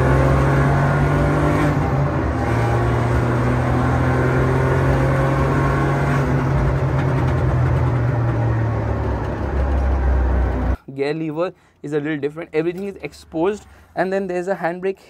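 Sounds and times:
car engine droning at speed: 0.0s - 10.8s.

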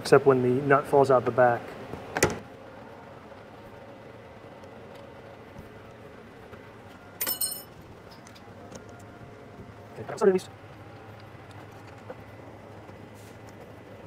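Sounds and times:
low workshop background: 6.5s - 9.0s
clink with high ringing tone: 7.2s - 7.7s.

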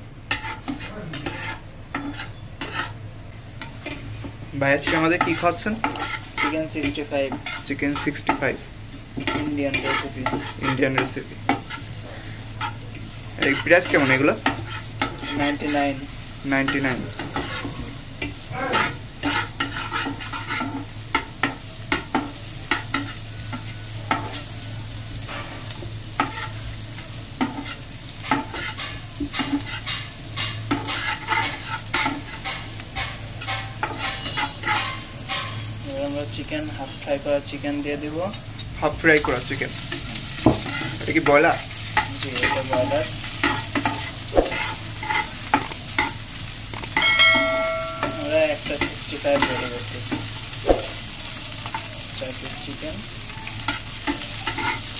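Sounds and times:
onions sizzling in oil: 0.0s - 54.9s
metal spatula clacking on pan: 27.4s - 35.6s, 46.8s - 50.3s.

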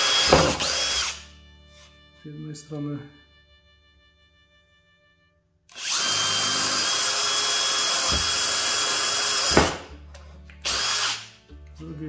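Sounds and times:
electric drill boring: 0.0s - 1.2s, 5.7s - 9.9s, 10.6s - 11.4s.

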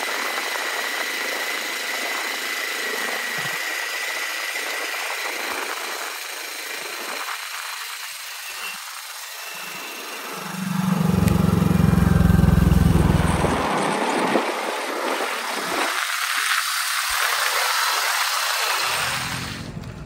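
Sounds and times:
motorcycle tyre rolling on asphalt: 8.1s - 19.9s
faint thin whine: 8.3s - 15.2s.

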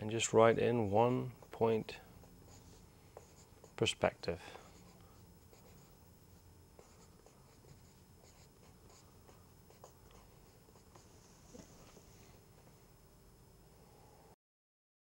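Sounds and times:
pencil scratching on paper: 2.2s - 3.9s, 4.7s - 6.0s, 6.8s - 11.1s.

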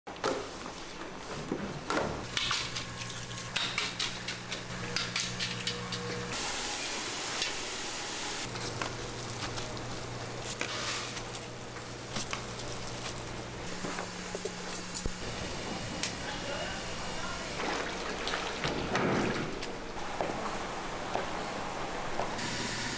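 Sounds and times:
metal utensils clicking and scraping: 2.3s - 6.3s
steady low hum: 8.2s - 17.8s
loud hiss: 22.4s - 22.9s.

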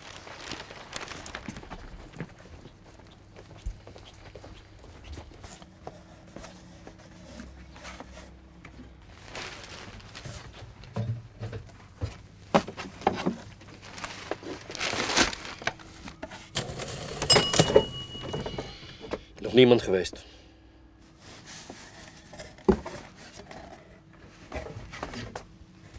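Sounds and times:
objects and paper being handled: 5.4s - 10.9s, 12.6s - 19.1s
thin high tone: 16.6s - 19.1s.

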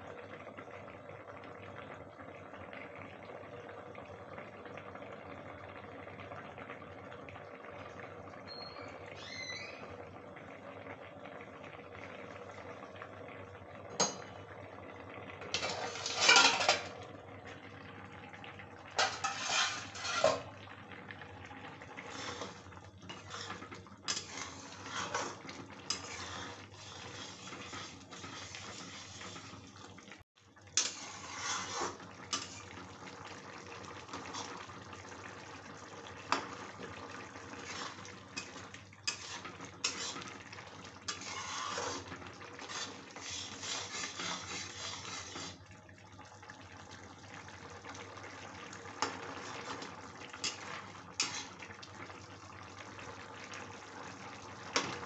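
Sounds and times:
gravy sloshing: 18.4s - 30.0s, 30.8s - 45.6s.

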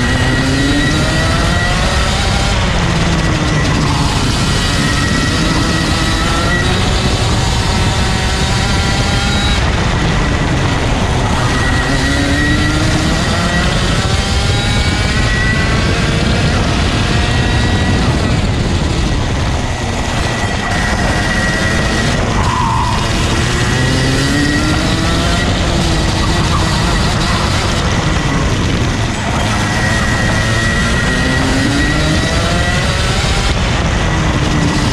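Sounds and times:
kart engine revving: 0.0s - 34.9s.

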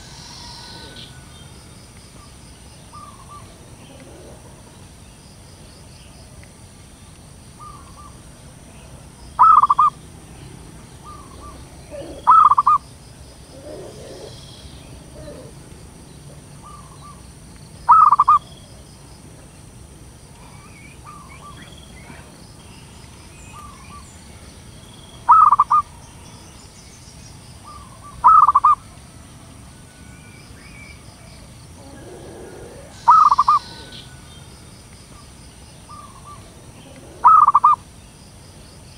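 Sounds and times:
dove cooing: 0.0s - 1.2s, 2.9s - 4.8s, 8.8s - 10.0s, 11.0s - 12.8s, 13.4s - 17.2s, 17.9s - 18.4s, 25.3s - 25.8s, 27.7s - 28.8s, 31.8s - 34.2s, 35.9s - 37.8s.

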